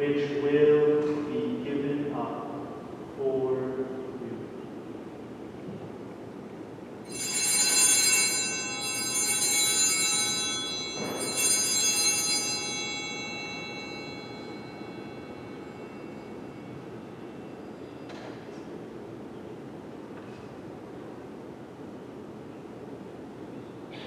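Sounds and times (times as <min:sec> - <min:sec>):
altar bells ringing: 0:07.0 - 0:18.5.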